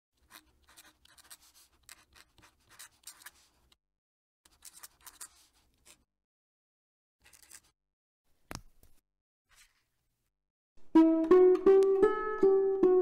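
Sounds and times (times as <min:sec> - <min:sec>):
pen nib scratching on paper: 0:00.2 - 0:03.8, 0:04.5 - 0:06.1.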